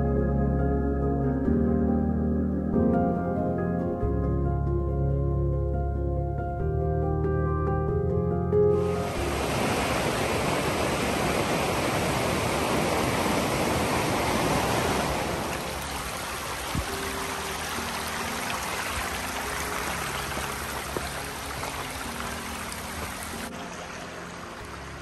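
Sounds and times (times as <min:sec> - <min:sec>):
stream rushing over stones: 0:08.8 - 0:25.0.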